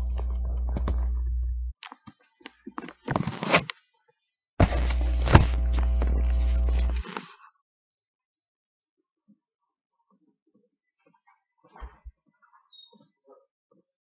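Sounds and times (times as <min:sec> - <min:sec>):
low rumble: 0:00.0 - 0:01.7.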